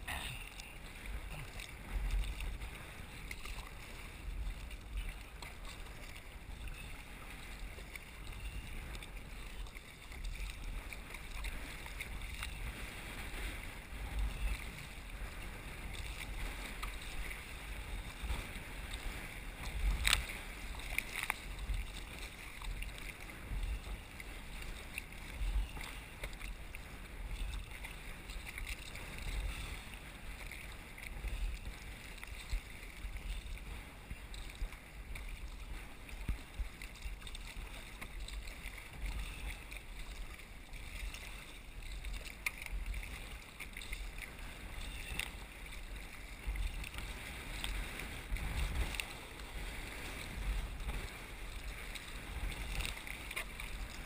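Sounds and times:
water splashing against kayak hull: 0:00.0 - 0:54.0
wind rumbling on microphone: 0:00.0 - 0:54.0.

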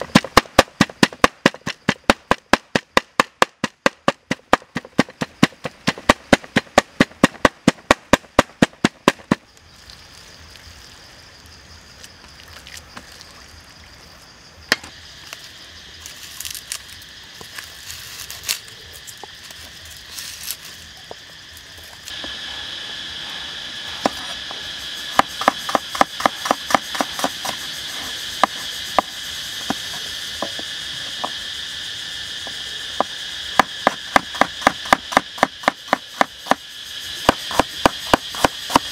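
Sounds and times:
cleaver chopping on wooden board: 0:00.0 - 0:09.4, 0:25.2 - 0:27.6, 0:33.0 - 0:36.6, 0:37.2 - 0:38.9
insects buzzing: 0:00.0 - 0:38.9.

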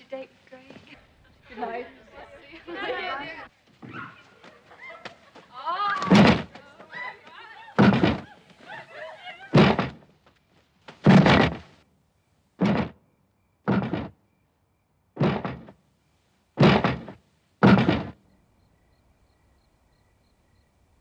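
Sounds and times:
footsteps on wooden ladder rungs: 0:05.3 - 0:08.7, 0:09.6 - 0:11.8, 0:12.6 - 0:13.0, 0:13.7 - 0:14.2, 0:15.2 - 0:15.8, 0:16.6 - 0:18.2.

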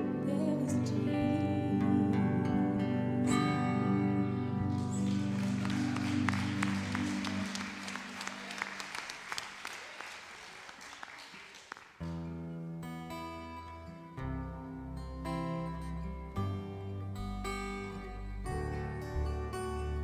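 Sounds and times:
soft sustained chords: 0:00.0 - 0:08.3
audience applause: 0:04.7 - 0:12.1.

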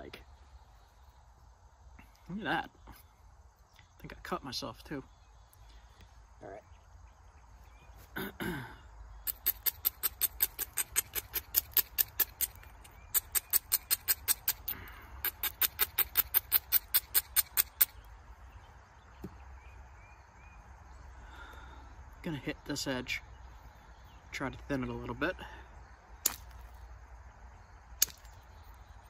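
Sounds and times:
stone scratching flint: 0:09.2 - 0:18.0.

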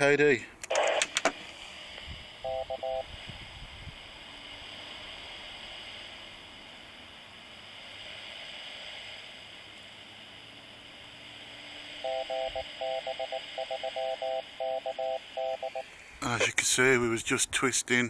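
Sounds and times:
radio speaker hiss: 0:00.0 - 0:18.0
morse code beeps: 0:02.4 - 0:03.1, 0:12.0 - 0:15.9.

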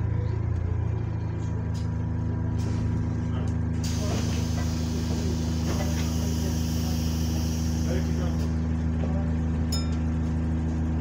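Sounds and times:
bus diesel engine drone: 0:00.0 - 0:11.0
hiss: 0:03.9 - 0:08.4.

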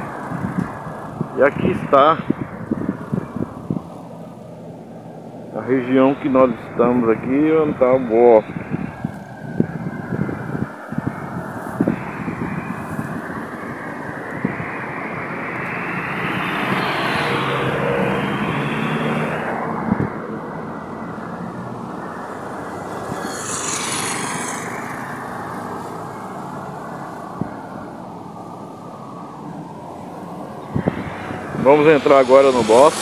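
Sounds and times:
street traffic rumble: 0:00.0 - 0:33.0.

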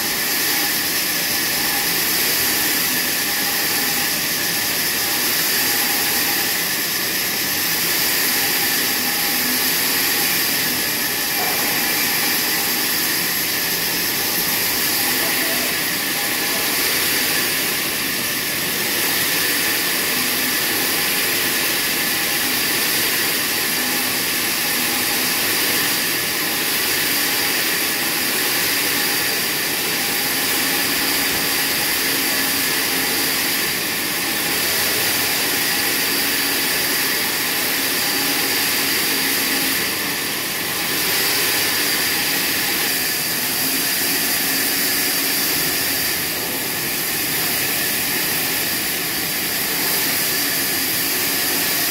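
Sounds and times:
band saw blade whining: 0:00.0 - 0:51.9.

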